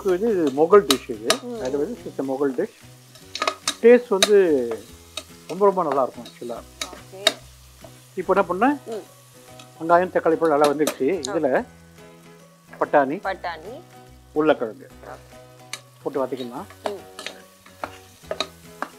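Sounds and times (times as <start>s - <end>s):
oil sizzling: 0.0s - 18.9s
metal ladle scraping pot: 3.1s - 5.3s, 17.1s - 18.6s.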